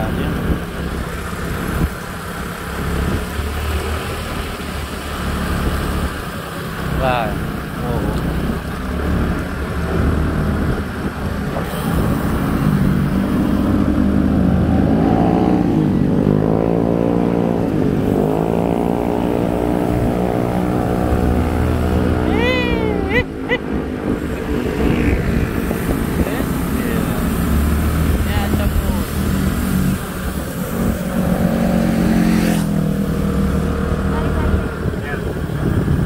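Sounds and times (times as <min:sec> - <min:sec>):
vehicle engine passing: 0:00.0 - 0:36.0
wind rushing over microphone: 0:09.5 - 0:36.0.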